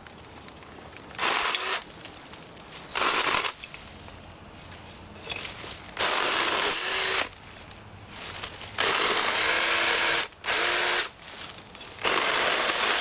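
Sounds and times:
chainsaw cutting branches: 1.2s - 1.9s, 2.9s - 3.6s, 5.8s - 7.4s, 8.4s - 11.2s, 11.8s - 13.0s.

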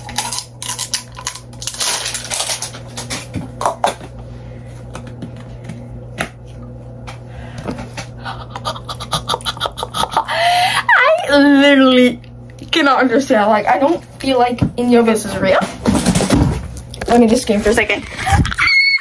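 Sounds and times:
steady low hum: 0.0s - 18.7s
girl screaming: 18.6s - 19.0s.

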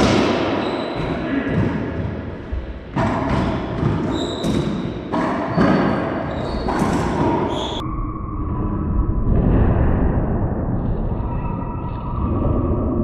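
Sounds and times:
racquetball hits echoing: 0.0s - 7.8s
shoe squeaks: 0.6s - 1.1s, 3.5s - 7.8s.

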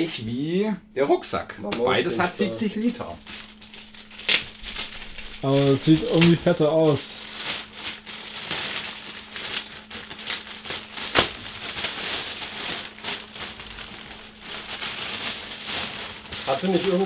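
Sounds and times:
bag and wrapping rustling: 2.4s - 17.0s.

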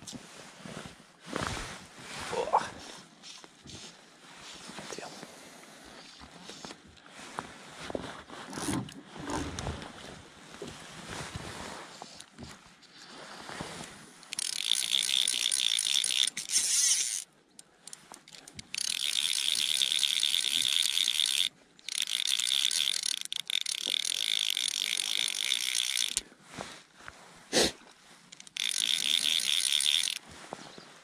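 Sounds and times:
fishing reel ratchet buzzing: 14.3s - 26.2s, 28.3s - 30.2s.

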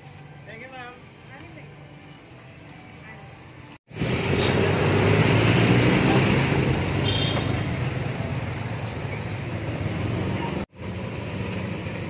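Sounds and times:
street traffic noise: 0.0s - 12.0s
vehicle engine rumble: 3.7s - 12.0s.

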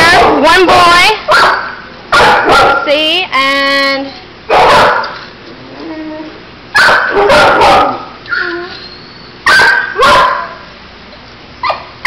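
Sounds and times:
dogs barking sharply: 0.0s - 2.9s, 4.5s - 5.4s, 6.7s - 8.4s, 9.4s - 10.7s
faint dog whining: 5.6s - 6.4s, 8.2s - 9.4s.

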